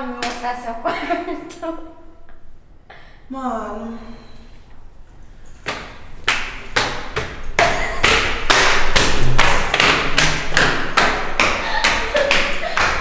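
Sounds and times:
flip-flop footsteps on stairs: 5.6s - 13.0s.

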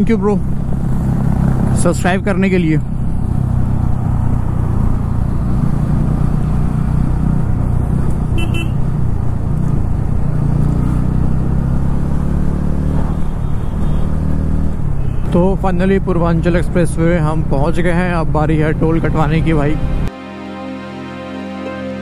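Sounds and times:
road noise: 0.0s - 22.0s
short horn beep: 8.4s - 8.8s.

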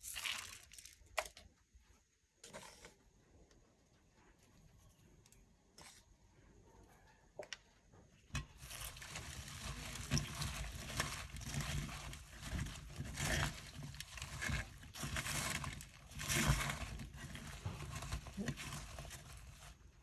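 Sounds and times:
leaves rustling in clay pot: 8.3s - 20.0s.

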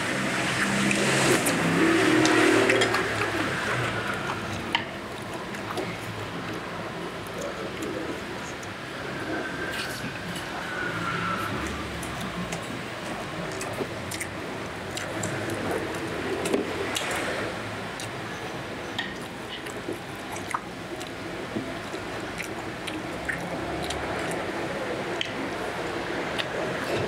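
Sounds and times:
food crunching: 13.4s - 14.3s, 21.8s - 24.5s
wet chewing mouth sounds: 13.4s - 17.4s, 19.0s - 25.4s.

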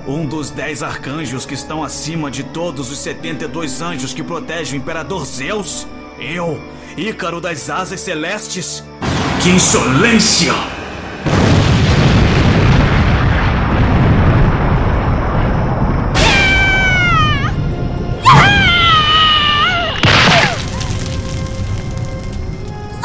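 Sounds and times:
music: 0.0s - 12.4s, 16.1s - 23.0s
explosion rumbling: 9.0s - 23.0s
high-pitched screams: 16.2s - 17.6s, 18.2s - 20.6s.

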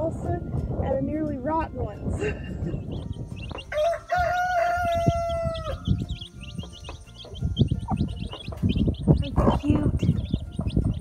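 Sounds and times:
chicks peeping: 2.1s - 11.0s
rooster crowing: 3.6s - 5.9s.

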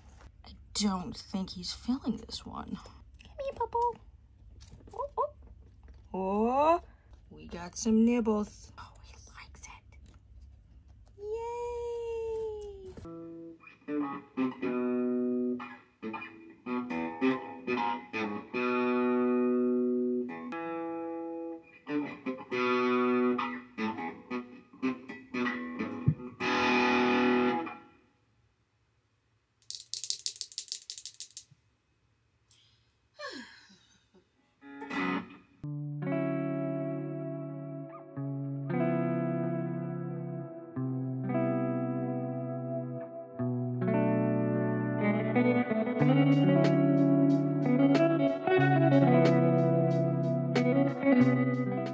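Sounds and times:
electric guitar notes and chords: 13.1s - 27.9s, 34.6s - 51.9s
scratchy rattle of high noise: 29.6s - 31.5s.

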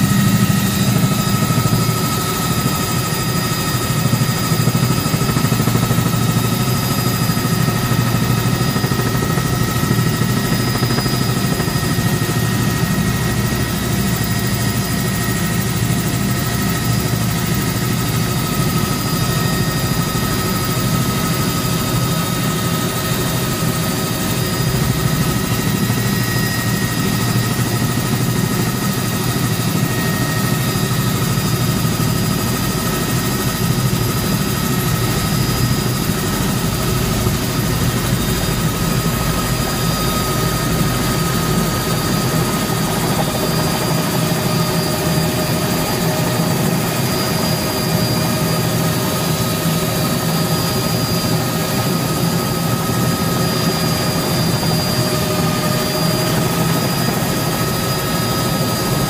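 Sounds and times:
high engine whine: 0.0s - 6.2s, 29.6s - 46.4s
helicopter rotor drone: 0.0s - 59.0s.

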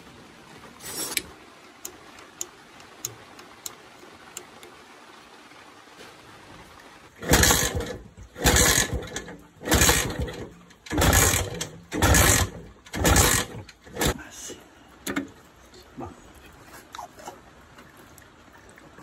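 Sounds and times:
engine kick-start bursts: 7.2s - 14.2s.

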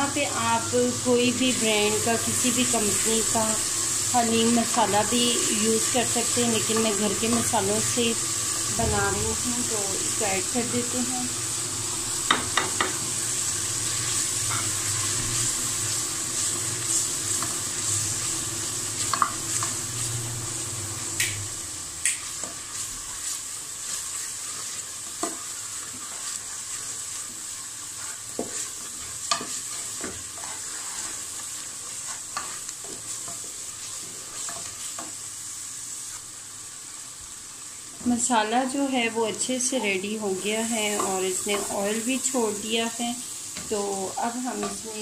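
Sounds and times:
masala sizzling in oil: 0.0s - 45.0s
spatula scraping and knocking pot: 27.8s - 33.6s.

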